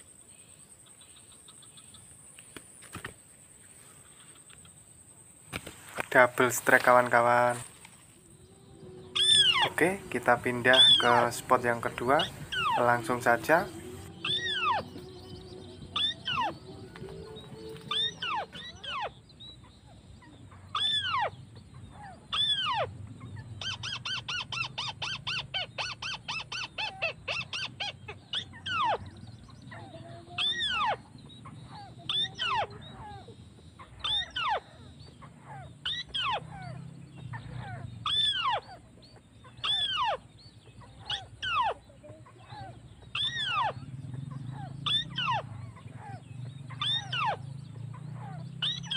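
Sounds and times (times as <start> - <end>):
crake calls with falling notes: 5.8 - 19.2.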